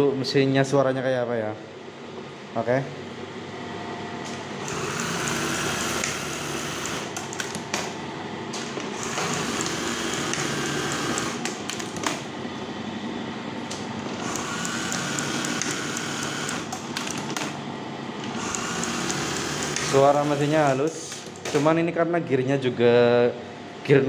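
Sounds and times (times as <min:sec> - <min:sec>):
sewing machine clicks: 0:04.6 - 0:07.8, 0:09.0 - 0:12.2, 0:14.2 - 0:17.6, 0:18.2 - 0:21.6
sewing machine humming: 0:04.6 - 0:07.8, 0:08.7 - 0:12.8, 0:14.0 - 0:21.6.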